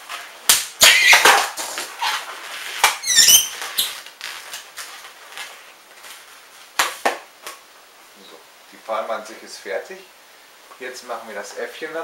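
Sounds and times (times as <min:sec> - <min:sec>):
high wavering balloon squeaks: 0:00.8 - 0:01.4, 0:02.9 - 0:04.3
balloon squeaking and rubbing: 0:00.8 - 0:04.4.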